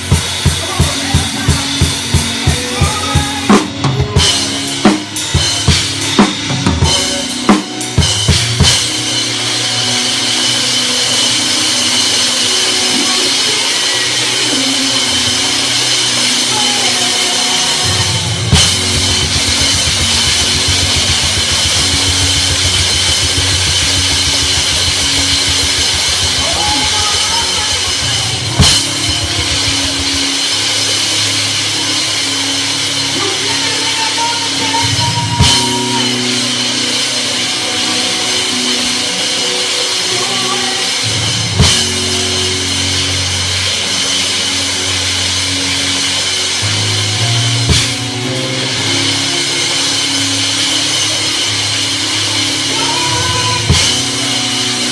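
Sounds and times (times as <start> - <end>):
cymbal crash: 0.0 - 54.9
cymbals washing: 0.0 - 54.9
gospel band playing: 0.0 - 54.9
low bass notes: 0.0 - 54.9
rumbling low drum strokes: 0.0 - 54.9
loud drum hit: 17.8 - 33.3.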